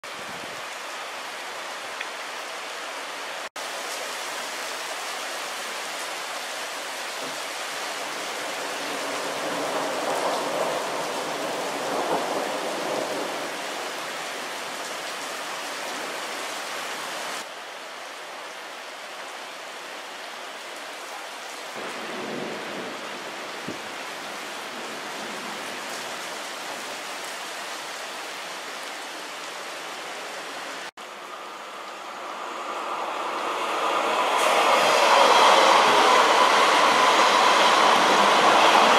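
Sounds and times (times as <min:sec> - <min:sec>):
steady rain: 0:00.0 - 0:38.9
rolling thunder rumble: 0:08.6 - 0:13.9, 0:21.8 - 0:24.0, 0:33.0 - 0:38.9.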